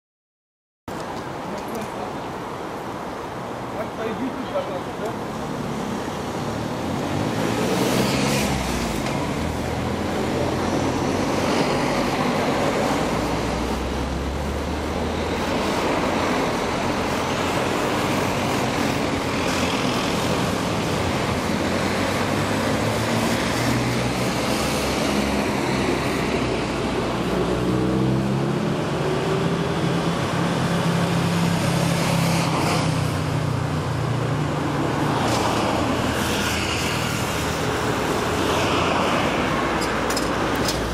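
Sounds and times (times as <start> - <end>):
cars passing: 0.9 - 40.9
traffic hum: 0.9 - 40.9
vehicle engine accelerating: 6.7 - 18.4.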